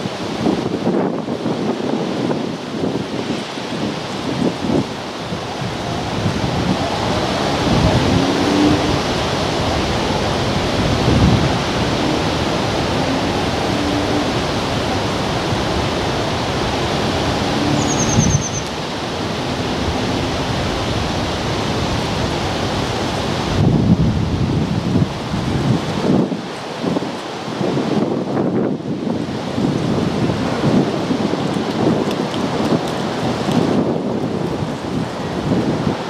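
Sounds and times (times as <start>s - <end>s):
wind blowing on microphone: 0.0s - 36.0s
short high-pitched trill: 17.7s - 18.7s.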